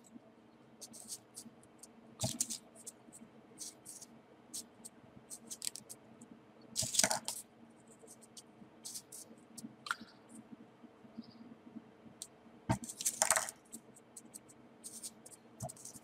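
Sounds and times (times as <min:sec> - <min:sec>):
paper ticks and rustles: 0:00.8 - 0:03.0, 0:05.3 - 0:06.0, 0:06.8 - 0:10.1, 0:12.7 - 0:16.0.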